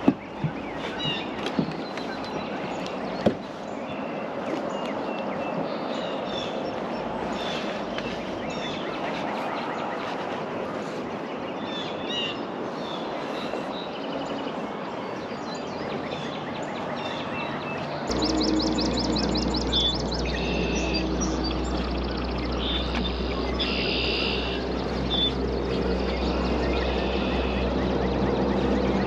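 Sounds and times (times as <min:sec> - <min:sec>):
small birds chirping: 0:00.0 - 0:29.0
steady low rumble: 0:18.0 - 0:29.0
bird trill of high notes: 0:18.1 - 0:25.4.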